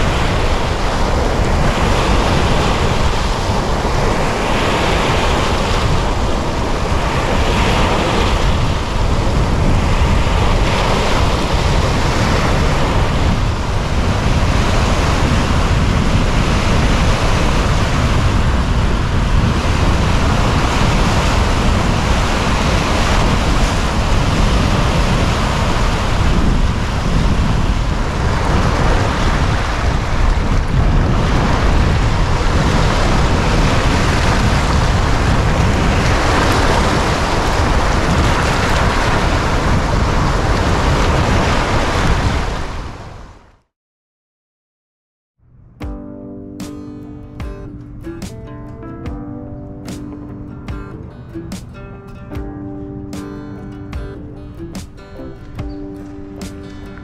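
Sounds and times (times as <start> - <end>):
waves washing over rocky shore: 0.0 - 43.2
wind rumbling on microphone: 0.0 - 43.6.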